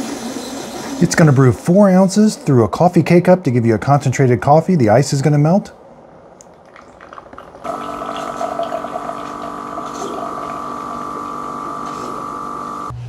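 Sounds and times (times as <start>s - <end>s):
faint liquid trickle: 6.4s - 11.3s
coffee maker pump humming: 6.4s - 13.0s.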